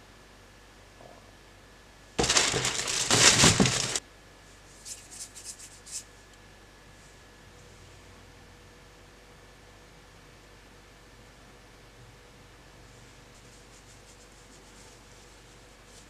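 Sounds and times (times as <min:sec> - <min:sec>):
hands tapping and rubbing potatoes: 0:02.2 - 0:04.0
potatoes clattering into plastic tub: 0:02.2 - 0:04.0.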